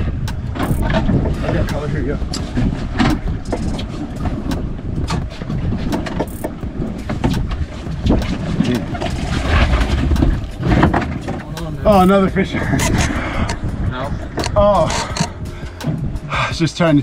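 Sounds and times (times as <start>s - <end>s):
wind buffeting microphone: 0.0s - 17.0s
knocks and clicks: 0.2s - 16.2s
fish thrashing and splashing: 2.3s - 12.1s.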